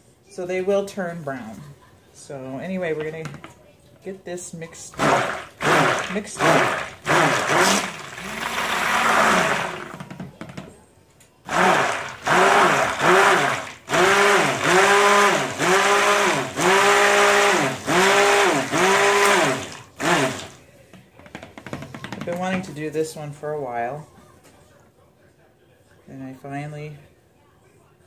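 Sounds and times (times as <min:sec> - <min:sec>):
stick blender motor pulsing: 0:05.0 - 0:10.2, 0:11.5 - 0:20.6.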